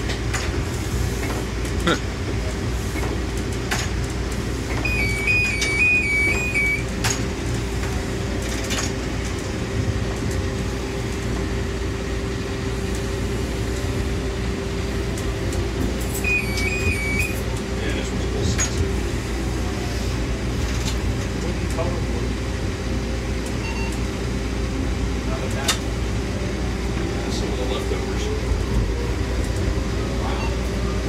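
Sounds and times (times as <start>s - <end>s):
electric rail car rumbling: 0.0s - 31.0s
motor hum: 4.3s - 14.3s, 15.0s - 17.7s
two-tone electronic signal: 4.8s - 6.9s, 16.2s - 17.4s, 30.2s - 30.7s.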